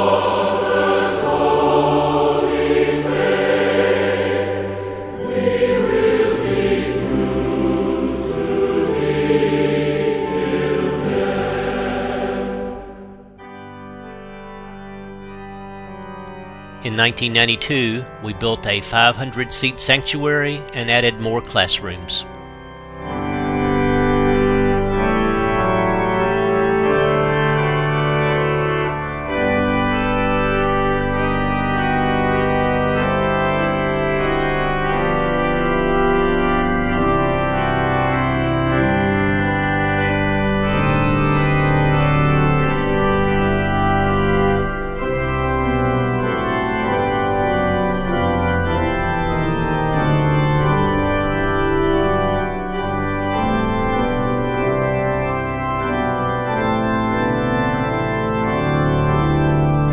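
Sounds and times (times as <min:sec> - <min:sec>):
organ playing slow chords: 0:00.0 - 0:59.9.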